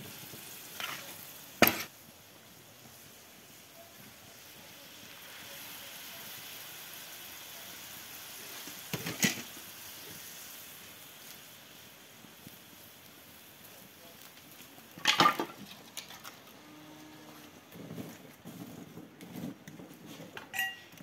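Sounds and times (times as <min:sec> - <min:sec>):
meat sizzling on hot griddle: 0:00.0 - 0:19.6.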